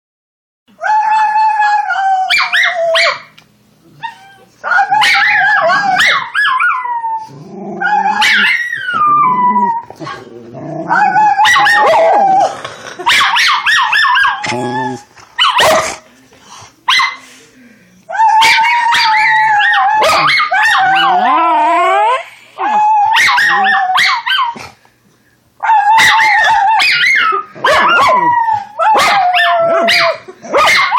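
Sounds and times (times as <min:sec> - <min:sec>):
puppy howling and yipping: 0:00.8 - 0:03.2, 0:04.0 - 0:10.0, 0:10.9 - 0:12.5, 0:18.1 - 0:24.6, 0:25.6 - 0:30.9
person howling: 0:06.9 - 0:10.0, 0:10.8 - 0:12.6, 0:14.4 - 0:15.1, 0:18.1 - 0:24.0.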